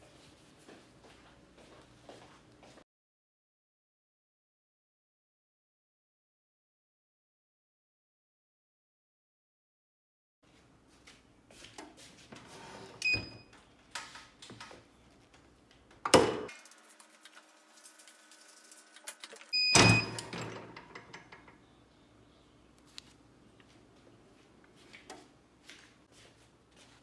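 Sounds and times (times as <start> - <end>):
short electronic beeps: 18.8 - 20.2.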